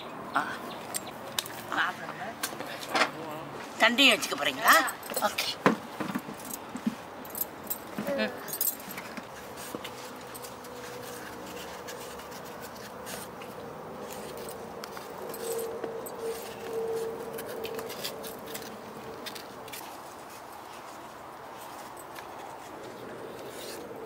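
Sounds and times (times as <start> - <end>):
knife scraping banana skin: 9.3 - 20.9, 22.2 - 24.0.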